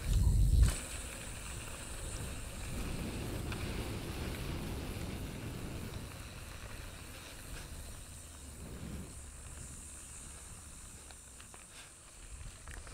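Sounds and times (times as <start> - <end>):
wind rumble on microphone: 0.0 - 10.3
tyres hissing on dirt: 0.0 - 12.9.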